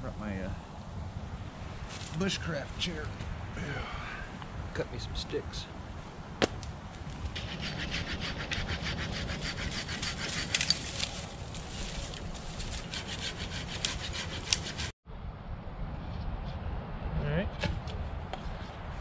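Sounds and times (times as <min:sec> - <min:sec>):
hand saw cutting wood: 0:07.4 - 0:14.9.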